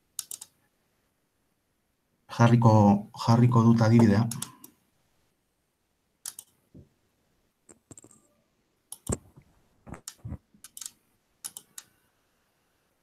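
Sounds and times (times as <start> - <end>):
computer keyboard typing: 0.2 - 0.5, 4.0 - 4.7, 6.3 - 6.5, 8.9 - 9.3, 9.9 - 11.9.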